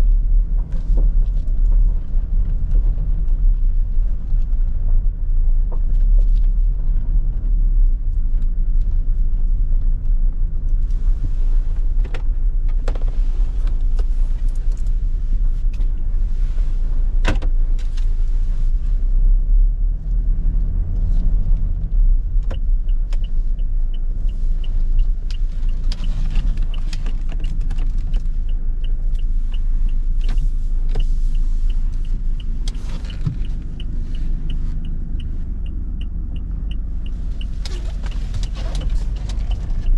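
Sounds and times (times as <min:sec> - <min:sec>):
diesel engine rumble: 0:00.0 - 0:39.9
road noise: 0:00.0 - 0:39.9
regular ticking: 0:21.6 - 0:39.9.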